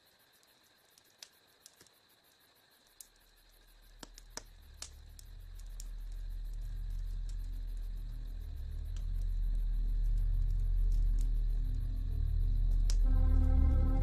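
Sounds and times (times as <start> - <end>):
insect chirring: 0.0 - 14.0
low rumble: 4.5 - 14.0.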